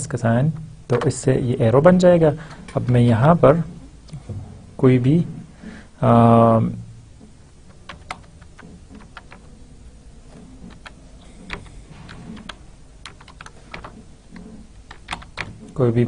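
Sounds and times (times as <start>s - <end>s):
keyboard keystrokes clicking: 7.7s - 9.6s, 10.3s - 15.8s.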